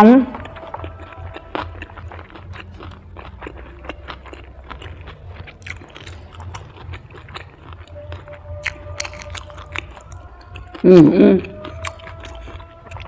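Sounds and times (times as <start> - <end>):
person chewing crunchy food: 0.3 - 13.0
crisp crunching clicks: 8.7 - 10.2.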